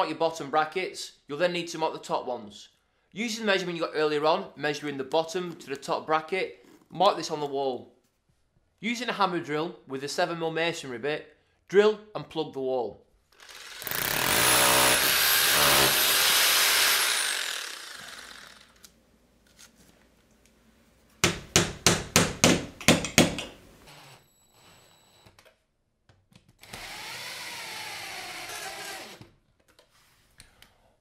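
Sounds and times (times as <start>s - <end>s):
hammer drill drilling into wall: 13.4s - 18.8s, 26.6s - 29.3s
cordless drill driving screws: 13.4s - 18.9s, 26.6s - 29.3s
hammer knocks: 21.2s - 23.6s.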